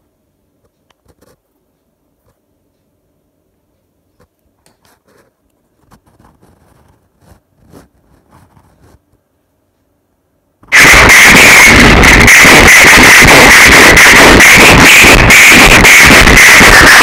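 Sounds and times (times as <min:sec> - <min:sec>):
faint clicks and scrapes: 0:00.6 - 0:02.9, 0:04.1 - 0:09.9
loud harsh noise blast: 0:10.6 - 0:17.0.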